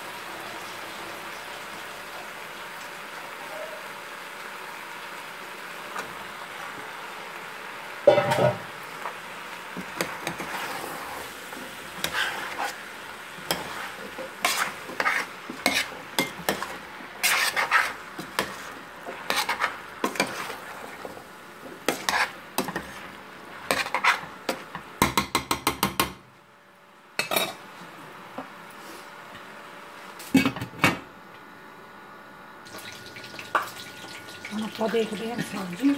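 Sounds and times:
food sizzling: 0:00.0 - 0:25.9, 0:32.6 - 0:35.9
spoon scraping metal pot: 0:12.0 - 0:12.8, 0:13.4 - 0:20.6, 0:21.9 - 0:23.0, 0:23.7 - 0:24.3.

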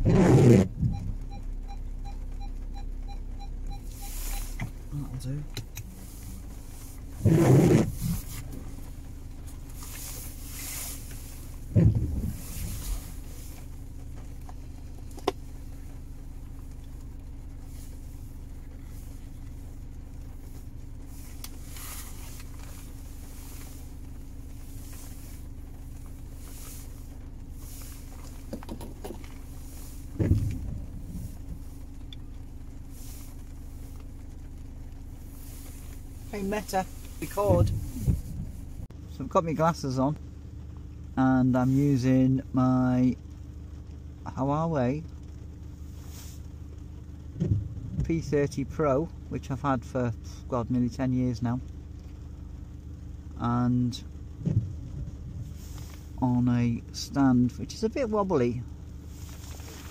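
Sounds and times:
windscreen wiper swishing: 0:00.0 - 0:38.9, 0:45.2 - 0:48.8, 0:54.2 - 0:56.2, 0:58.8 - 0:59.9
car cabin hum idling: 0:00.0 - 0:59.9
rain: 0:00.0 - 0:59.9
dull thumps: 0:11.6 - 0:13.2, 0:28.0 - 0:31.7.

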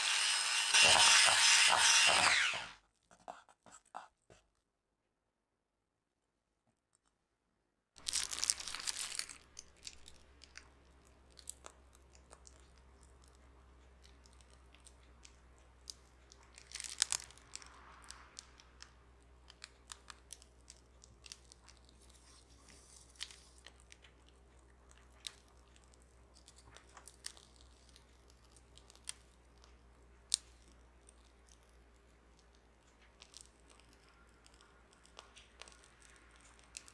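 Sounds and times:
plastic piping bag crinkling: 0:08.0 - 0:13.4, 0:14.0 - 0:36.9
cream squishing: 0:08.0 - 0:36.9.

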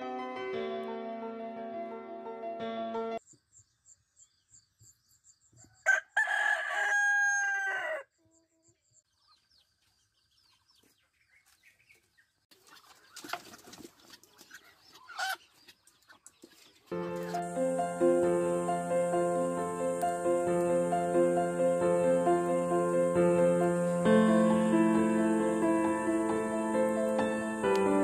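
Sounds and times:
rooster crowing: 0:05.8 - 0:08.1.

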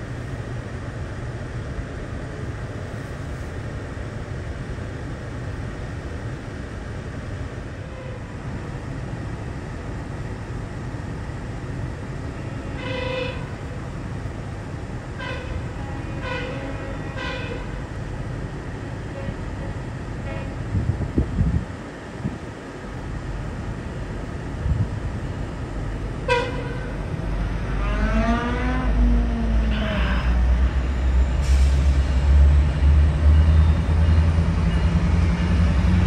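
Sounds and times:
low rumble inside train car: 0:00.0 - 0:36.0
train horn blasts: 0:07.8 - 0:08.4, 0:12.4 - 0:13.6, 0:15.2 - 0:17.8, 0:20.2 - 0:20.6, 0:26.2 - 0:27.0.

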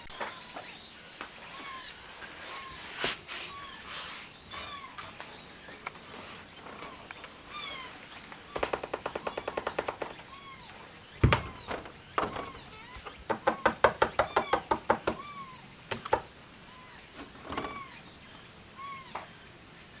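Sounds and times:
thump: 0:11.2 - 0:12.4.

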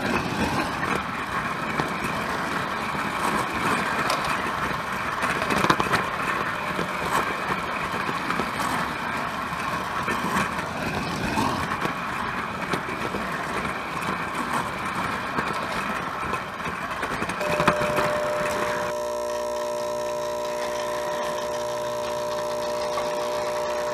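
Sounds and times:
wheels rattling on rails: 0:00.0 - 0:23.9
toy train motor whirring: 0:17.0 - 0:23.9.

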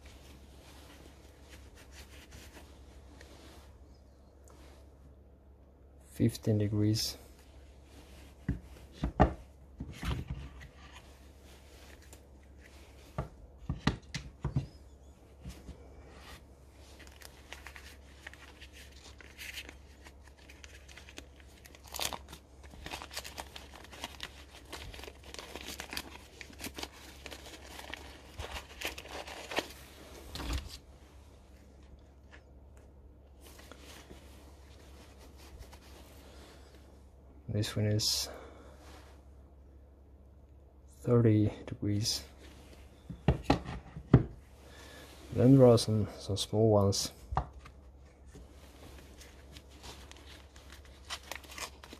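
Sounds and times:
paper wrapping crinkling: 0:16.8 - 0:30.8, 0:47.6 - 0:51.9.

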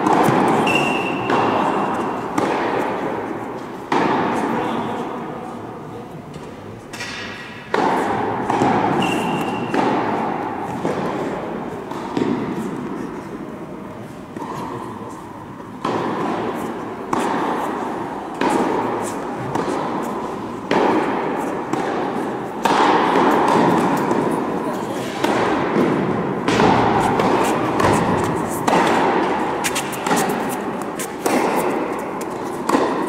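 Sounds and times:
tennis ball bounces: 0:00.0 - 0:04.5, 0:06.3 - 0:13.0, 0:15.6 - 0:33.0
tennis racket strokes: 0:00.0 - 0:33.0.

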